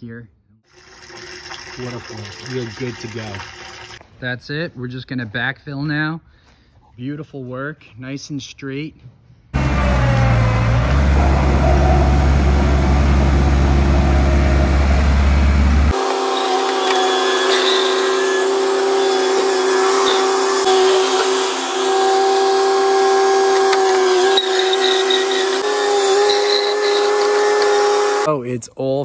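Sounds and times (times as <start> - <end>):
loader engine running: 9.6 - 28.3.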